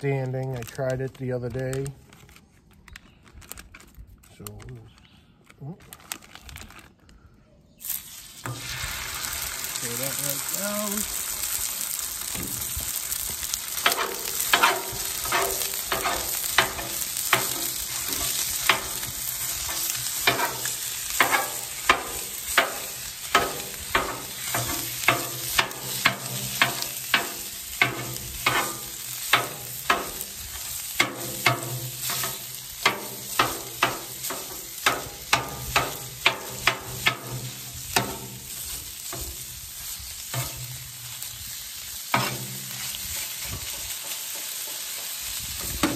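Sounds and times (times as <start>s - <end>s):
sausage sizzling on griddle: 7.8s - 45.9s
metal scraper clacking on griddle: 13.8s - 30.3s, 31.0s - 39.4s, 42.2s - 45.9s.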